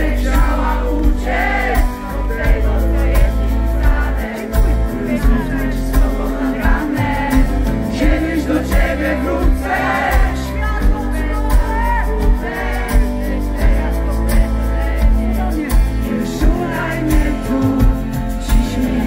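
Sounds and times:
bass: 0.0s - 19.0s
drum beat: 0.0s - 19.0s
live pop rock band: 0.0s - 19.0s
woman singing: 5.1s - 19.0s.

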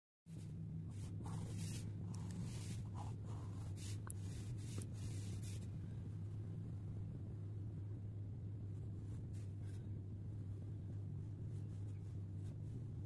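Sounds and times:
steady low hum: 0.3s - 13.0s
pen scratching on paper: 0.9s - 5.6s.

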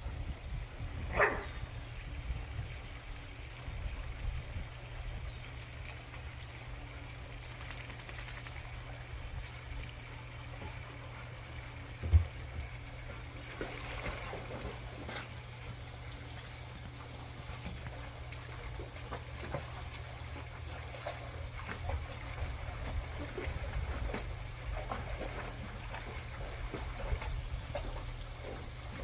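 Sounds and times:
steady low rumble: 0.0s - 19.1s
trickling water: 0.0s - 29.0s
dogs splashing and drinking: 1.1s - 29.0s.

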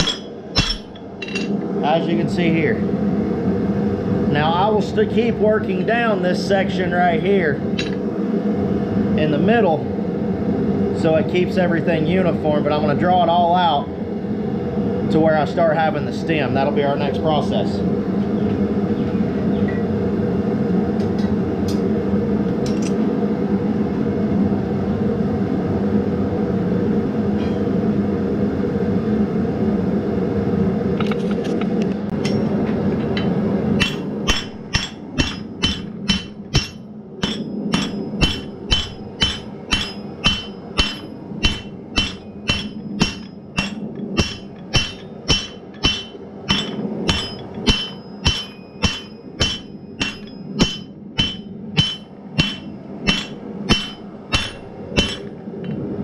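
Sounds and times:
hammer striking steel on anvil: 0.0s - 1.6s, 32.2s - 55.3s
gas forge roaring: 0.0s - 56.0s.

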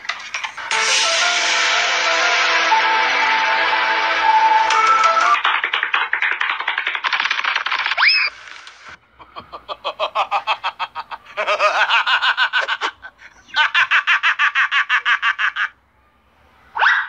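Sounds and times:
high-pitched laughter: 9.3s - 15.8s.

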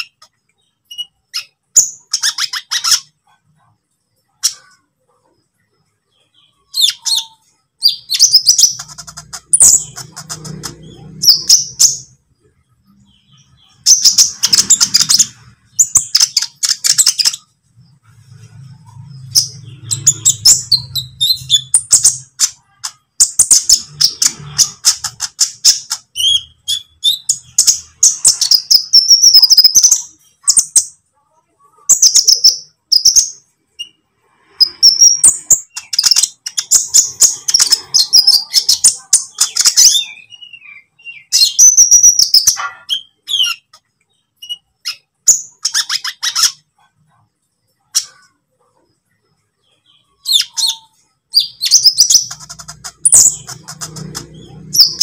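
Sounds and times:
sunbird chirping trills: 0.0s - 55.0s.

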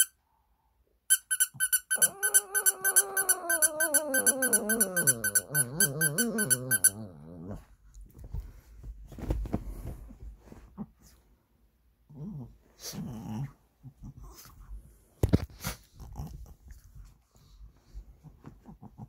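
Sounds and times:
squeaky toy squeaking: 1.1s - 7.1s
dog howling: 2.0s - 7.2s.

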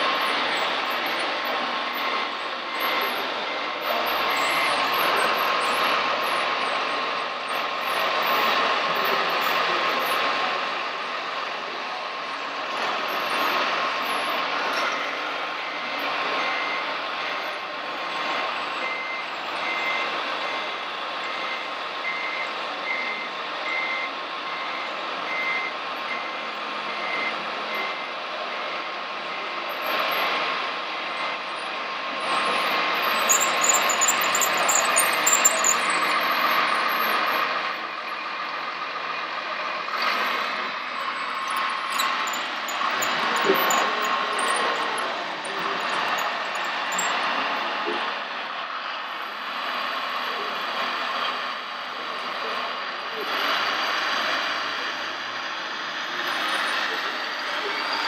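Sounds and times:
steady engine-like drone: 0.0s - 58.0s
reversing beeper: 33.0s - 37.2s, 40.1s - 47.5s
high ticking: 33.1s - 36.2s, 41.3s - 47.2s.

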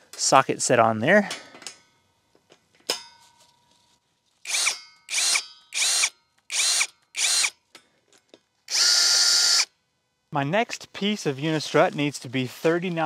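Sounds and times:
cordless drill whining in bursts: 4.4s - 7.6s, 8.7s - 9.7s.

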